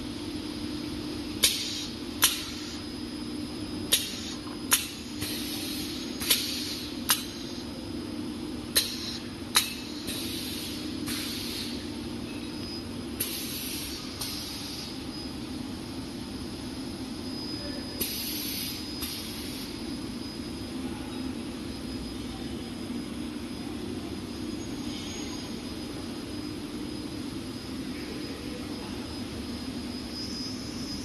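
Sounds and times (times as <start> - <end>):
conveyor hum: 0.0 - 31.0
pneumatic pusher clicks: 1.4 - 2.6, 6.2 - 7.4, 8.8 - 11.7.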